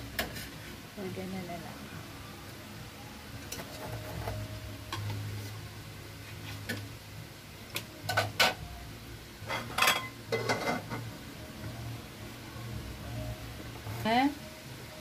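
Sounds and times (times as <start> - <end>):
low steady hum: 0.0 - 15.0
kitchenware clinking: 9.5 - 11.0.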